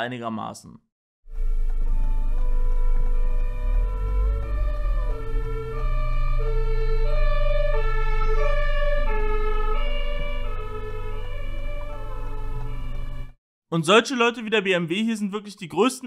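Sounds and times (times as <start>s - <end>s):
two-tone ambulance siren: 1.3s - 13.4s.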